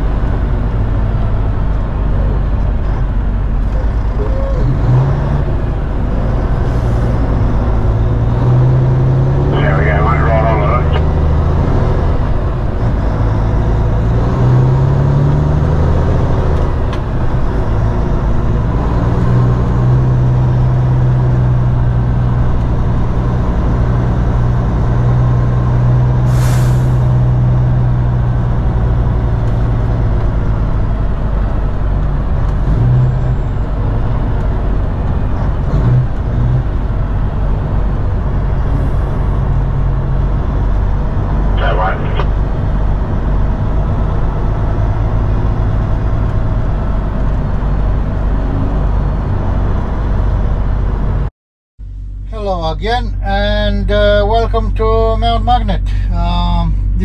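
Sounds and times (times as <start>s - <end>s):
diesel truck engine running: 0.0s - 57.0s
sharp hiss of air: 26.3s - 27.0s.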